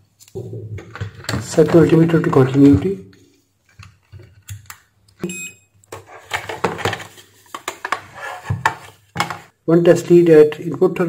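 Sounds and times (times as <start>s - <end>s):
high electronic beep: 5.2s - 5.7s.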